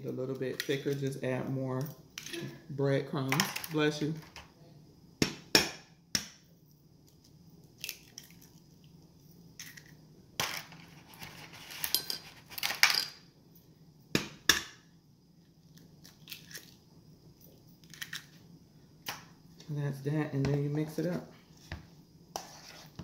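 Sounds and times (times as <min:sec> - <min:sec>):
eggshells crunching: 0:15.6 - 0:16.8.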